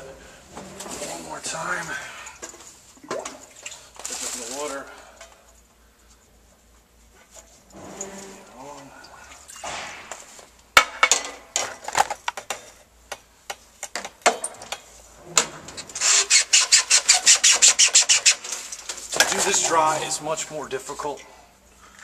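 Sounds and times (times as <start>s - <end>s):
glass tube rubbing in seal: 16.0s - 18.6s.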